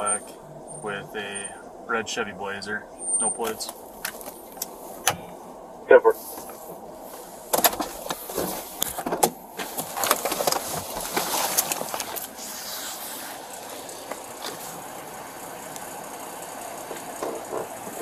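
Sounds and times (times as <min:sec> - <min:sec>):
idling cars hum: 0:00.0 - 0:18.0
gear clicking and rustling: 0:03.2 - 0:05.4, 0:06.2 - 0:18.0.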